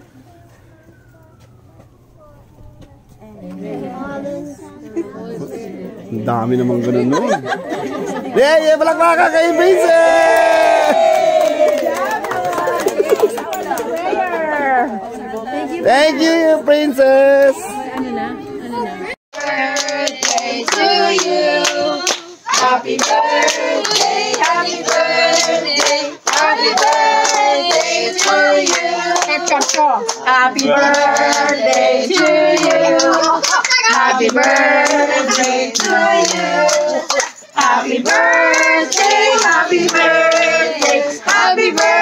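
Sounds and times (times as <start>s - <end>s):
group of people singing: 17.5s - 42.0s.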